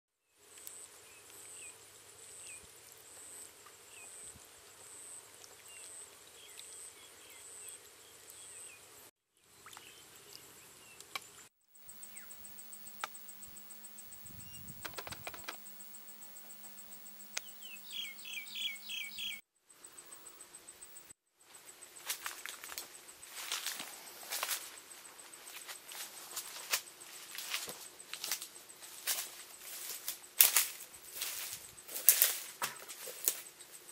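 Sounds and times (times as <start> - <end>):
pulsing insect trill: 11.7 - 33.9
bird singing repeated notes: 11.8 - 19.4
short bird chirps: 11.9 - 19.4.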